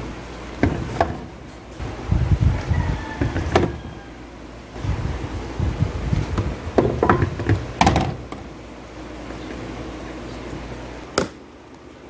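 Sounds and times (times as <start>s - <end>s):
low steady hum: 0.0s - 12.0s
cartons thumping in fridge shelf: 0.6s - 1.4s, 3.2s - 3.9s, 6.3s - 8.4s.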